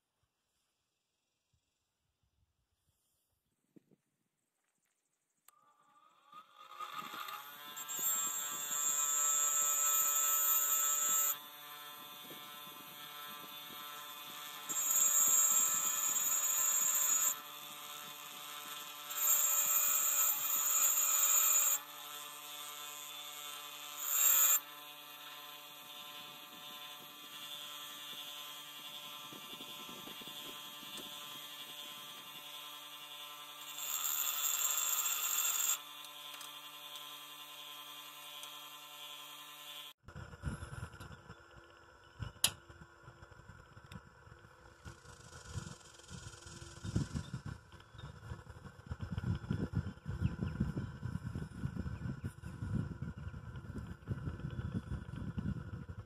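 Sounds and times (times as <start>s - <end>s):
bench grinder motor hum: 5.5s - 41.7s, 42.3s - 56.0s
metal fitting grinding on wheel: 14.7s - 17.4s.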